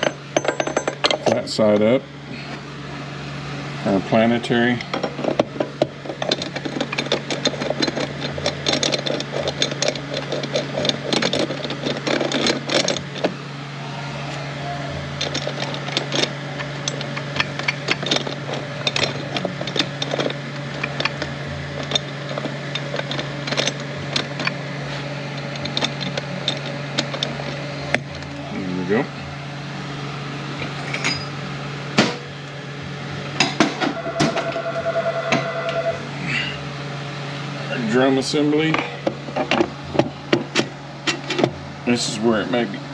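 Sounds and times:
steady low hum: 0.0 - 42.9
metal gears clicking: 4.9 - 13.4, 15.1 - 24.6, 25.3 - 28.3.

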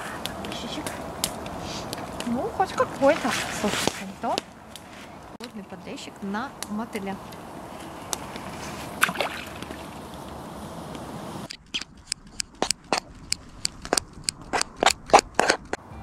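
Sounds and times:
steady background hiss: 0.0 - 11.5
campfire crackling and popping: 0.0 - 15.8.

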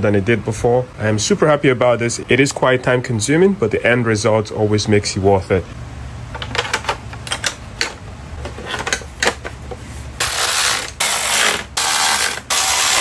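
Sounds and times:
noisy mechanical strokes: 10.2 - 13.0.

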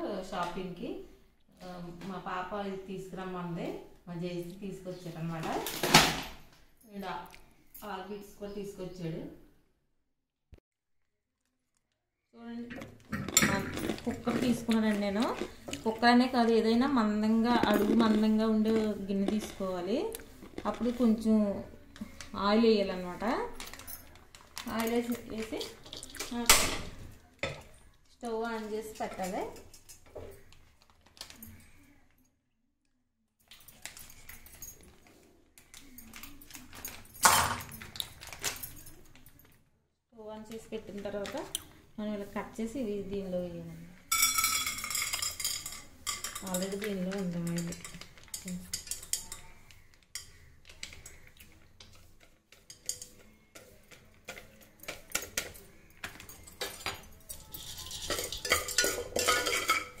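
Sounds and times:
plastic packet rustling: 13.0 - 26.4, 30.4 - 31.8
ladle stirring and scraping pot: 44.1 - 60.0
popcorn kernels rattling on metal: 44.1 - 60.0.

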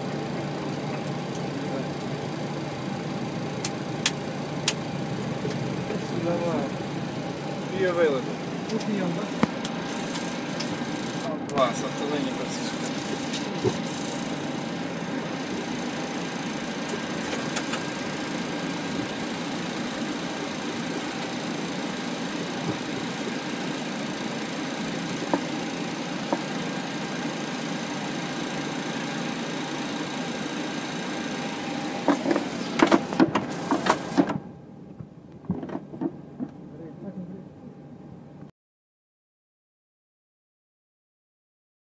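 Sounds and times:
thin high whines: 0.0 - 34.2
jet engines idling: 0.0 - 37.0.

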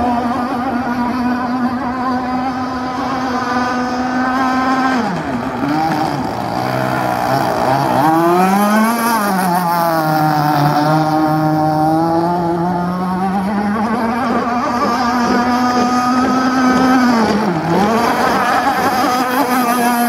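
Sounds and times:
rc speedboat motor whining: 0.0 - 20.0.

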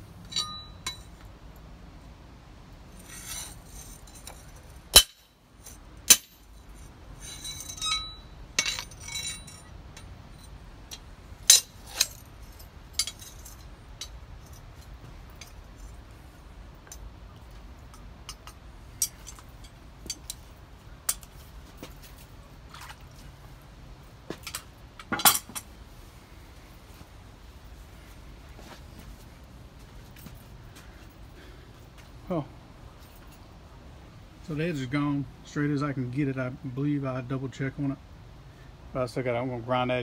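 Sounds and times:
metal clinks and scrapes: 0.2 - 1.3, 2.9 - 22.4, 24.4 - 25.7
hammer striking metal: 0.3 - 1.0, 4.9 - 5.4.

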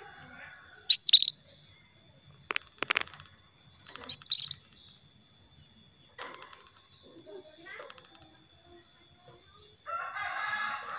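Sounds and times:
canary chirping: 0.8 - 1.8, 3.1 - 5.1.

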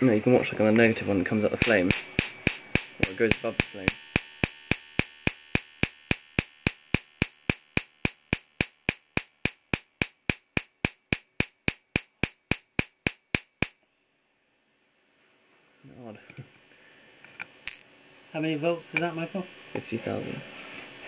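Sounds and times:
sharp electric spark cracks: 1.3 - 13.8, 17.6 - 17.9.

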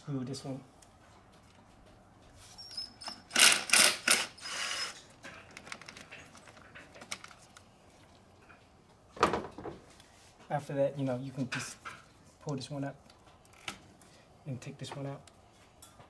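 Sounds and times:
cordless wrench unscrewing bolt: 3.0 - 6.1.

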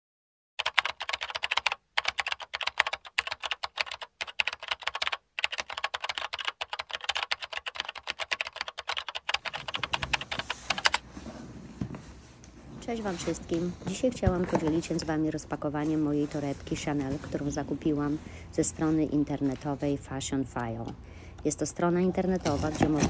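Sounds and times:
keyboard typing: 0.6 - 11.0.

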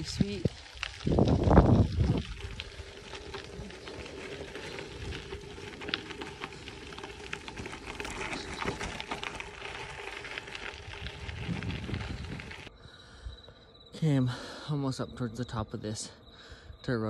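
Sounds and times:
bicycle tyres on gravel: 0.0 - 12.8.

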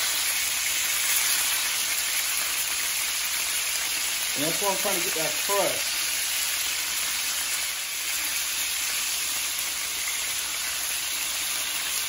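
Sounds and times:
steaks sizzling in a skillet: 0.0 - 12.0.

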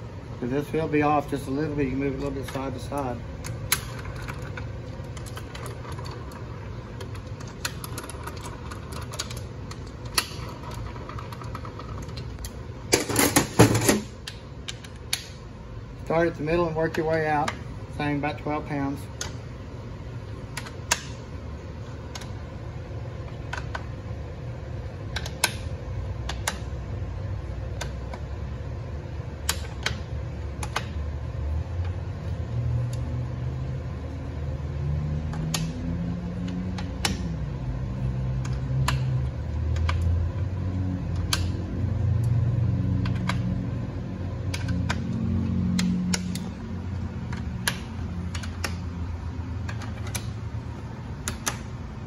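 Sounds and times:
low mechanical hum: 0.0 - 52.0
metallic clicks of torque wrench: 49.6 - 50.4.

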